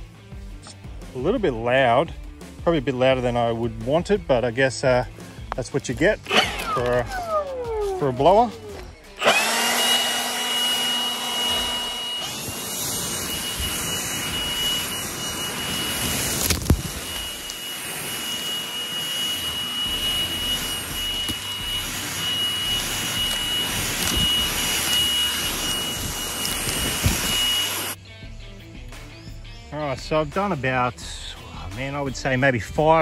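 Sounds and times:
leaf blower running: 6.2s - 28.0s
dry leaves blowing across ground: 11.7s - 28.0s.

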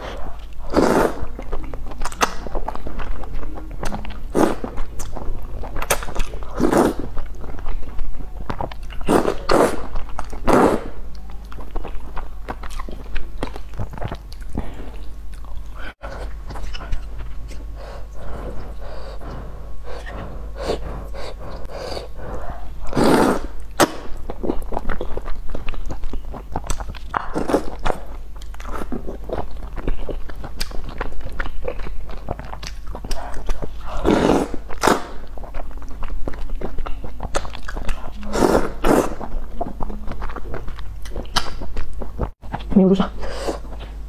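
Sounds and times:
person slurping and chewing noodles: 0.0s - 44.0s.

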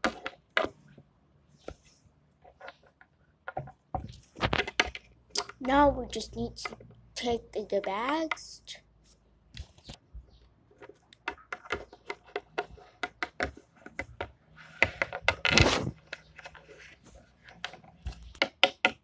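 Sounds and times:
plastic toys clicking and tapping: 2.5s - 8.8s, 10.7s - 16.8s, 17.4s - 19.0s
scraping rustle: 14.6s - 18.3s.

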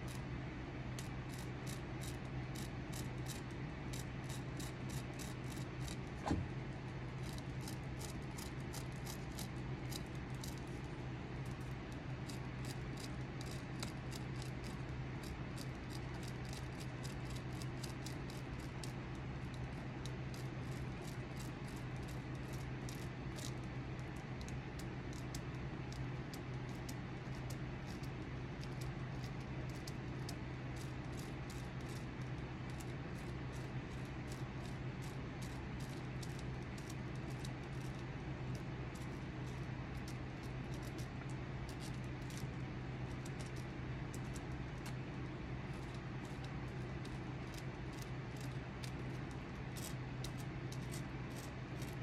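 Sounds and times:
steady low hum: 0.0s - 52.0s
carving tool scraping wood: 2.6s - 6.5s.

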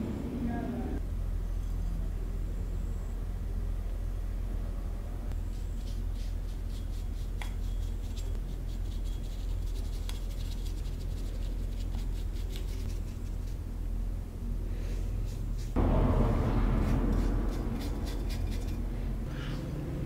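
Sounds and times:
bristle brush strokes on metal: 5.4s - 13.7s, 16.6s - 19.7s
low hum: 12.8s - 20.0s.

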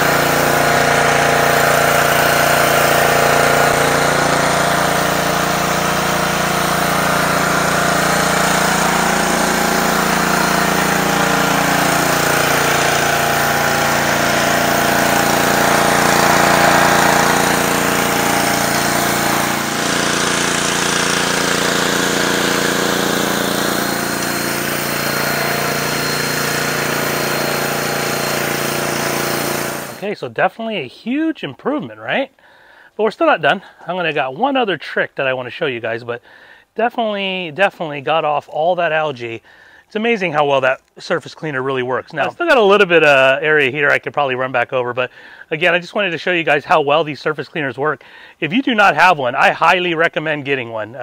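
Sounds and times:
high-pressure water spraying on concrete: 0.0s - 30.0s
pressure washer engine running: 0.0s - 30.1s, 42.2s - 44.0s, 48.8s - 50.2s.

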